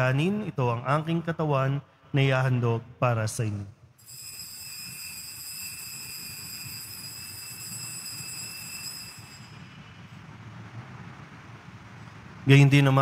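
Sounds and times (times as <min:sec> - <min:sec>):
altar bells ringing: 0:04.0 - 0:10.0.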